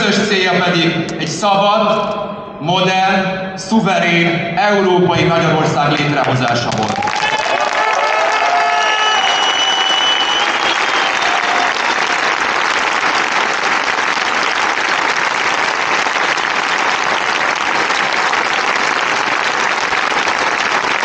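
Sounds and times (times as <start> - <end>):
large crowd applauding: 6.0 - 21.0.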